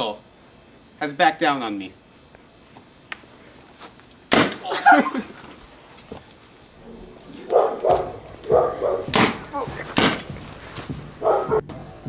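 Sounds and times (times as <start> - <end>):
gunshot bang: 4.3 - 4.6, 9.1 - 10.4
man crying out: 4.6 - 5.4.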